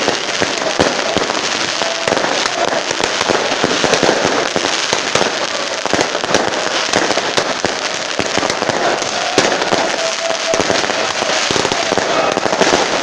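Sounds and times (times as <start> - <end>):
fireworks crackling: 0.0 - 13.0.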